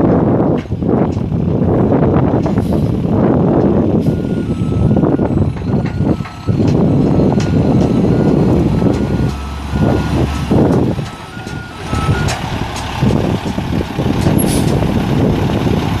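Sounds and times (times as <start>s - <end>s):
diesel truck engine running: 0.0s - 16.0s
reversing alarm beeps: 4.1s - 12.4s.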